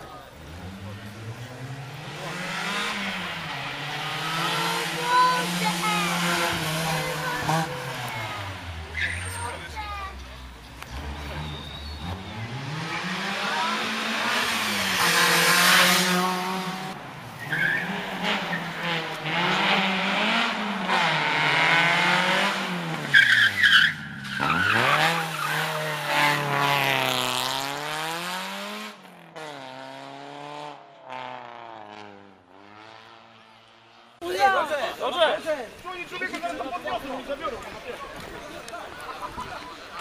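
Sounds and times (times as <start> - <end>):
rally car engine revving: 0.2 - 9.5, 10.8 - 34.1
tyre squeal: 8.9 - 9.6, 11.3 - 12.4, 23.1 - 25.8.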